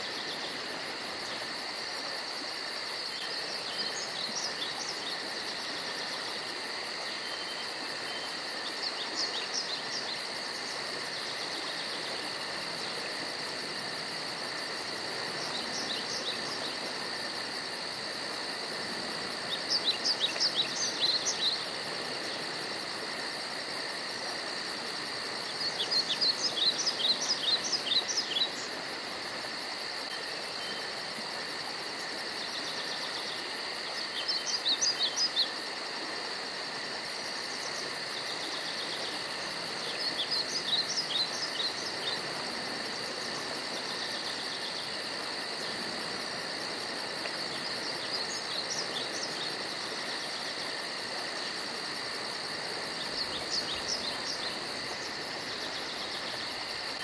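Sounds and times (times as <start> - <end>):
songbird singing: 19.4 - 22.5, 25.4 - 28.8, 39.8 - 42.3, 52.9 - 56.6.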